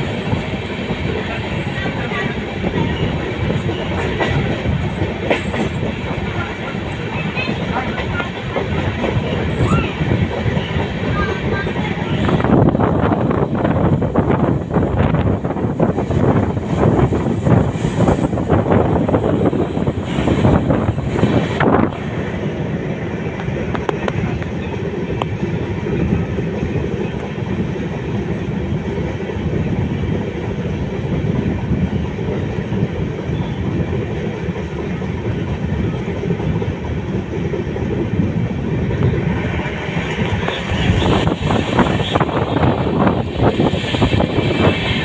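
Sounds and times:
freight train rumble and clatter: 0:00.0 - 0:45.0.

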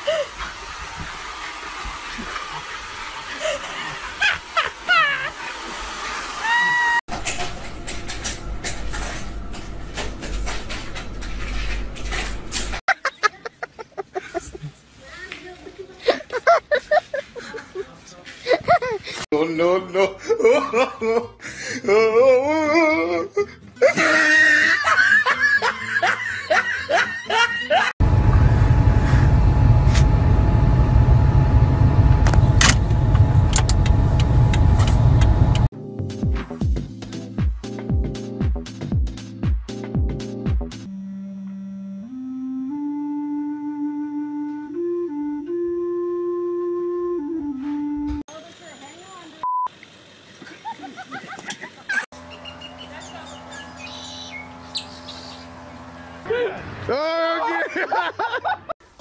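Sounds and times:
steady low hum: 0:07.1 - 0:12.8, 0:28.0 - 0:35.7, 0:52.2 - 0:56.3
car engine and road rumble: 0:28.0 - 0:35.7
small birds chirping: 0:52.2 - 0:56.2.

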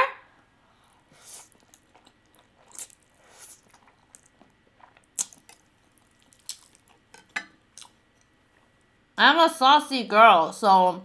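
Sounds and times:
noodles slurped and chewed: 0:01.1 - 0:07.1.

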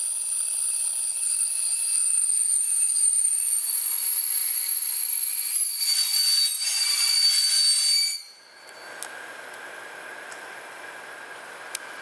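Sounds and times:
train brakes squealing: 0:00.0 - 0:09.0.

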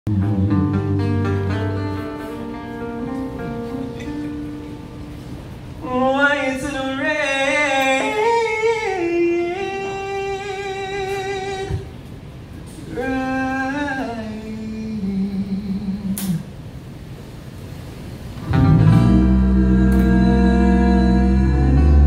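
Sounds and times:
acoustic guitar playing: 0:00.1 - 0:11.7, 0:18.4 - 0:22.0
person singing wordless line: 0:12.8 - 0:16.5.

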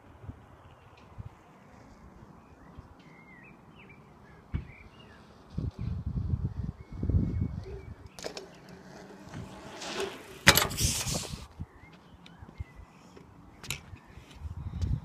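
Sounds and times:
bicycle tyre hiss: 0:09.4 - 0:11.5.

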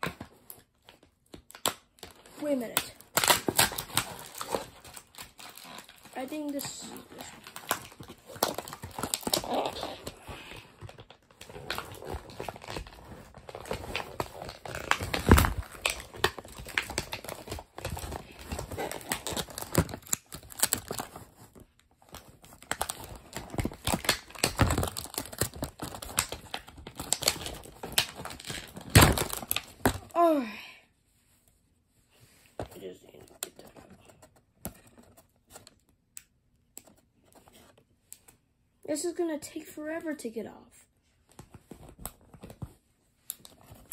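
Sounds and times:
plastic packaging crinkling: 0:01.5 - 0:30.1.

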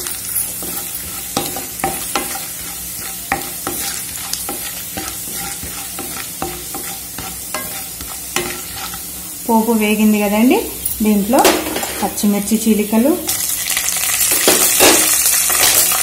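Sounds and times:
spatula knocking and scraping pan: 0:00.0 - 0:09.2, 0:14.3 - 0:16.0
spices sizzling in hot oil: 0:00.0 - 0:16.0.

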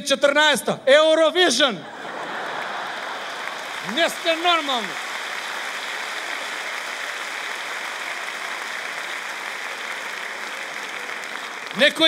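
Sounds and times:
audience laughter: 0:01.8 - 0:04.5
audience applauding: 0:02.0 - 0:12.0.

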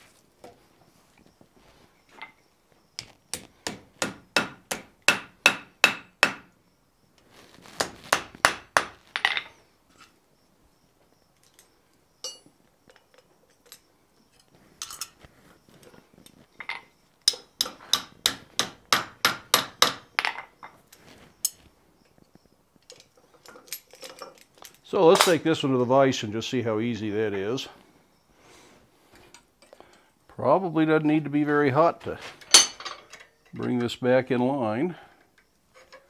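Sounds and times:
light metal clinks: 0:11.4 - 0:15.2, 0:22.8 - 0:25.4.

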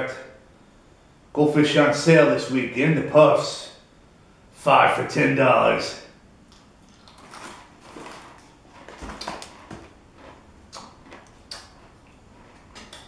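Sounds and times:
snack bag rustling: 0:06.5 - 0:12.9.

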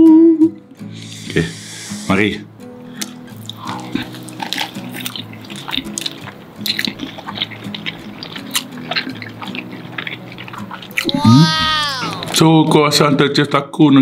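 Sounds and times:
soft background music: 0:00.0 - 0:11.2
people chewing with wet smacks: 0:03.0 - 0:12.5.

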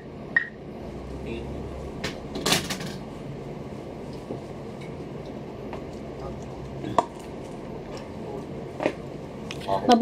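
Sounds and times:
low room hum: 0:00.0 - 0:10.0.

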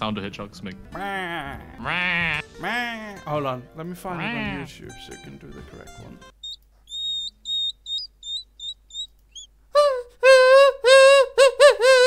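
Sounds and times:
person squealing: 0:01.0 - 0:03.2, 0:04.2 - 0:04.7, 0:09.8 - 0:12.0
faint high chirps: 0:06.4 - 0:09.6.

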